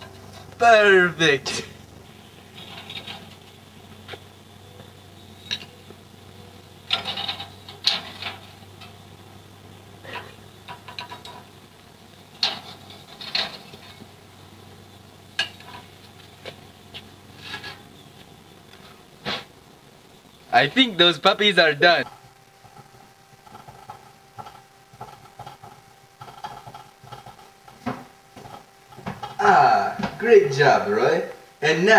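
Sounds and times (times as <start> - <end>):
faint low hum: 0.0 - 31.9
utensil scraping in a pan: 1.5 - 3.6, 12.3 - 14.1, 15.4 - 16.2, 17.2 - 18.2, 22.0 - 29.4.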